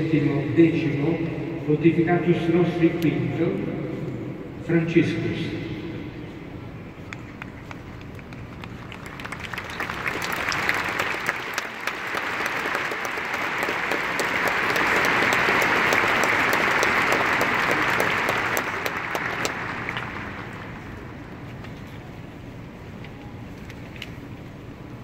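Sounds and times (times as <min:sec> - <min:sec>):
large crowd applauding: 0:07.4 - 0:21.4.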